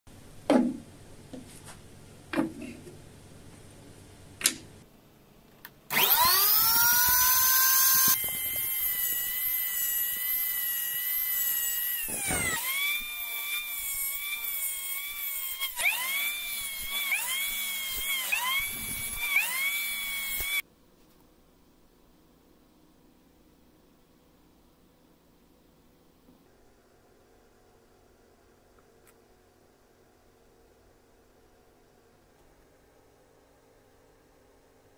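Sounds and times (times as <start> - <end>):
miter saw cutting wood: 5.9 - 20.6.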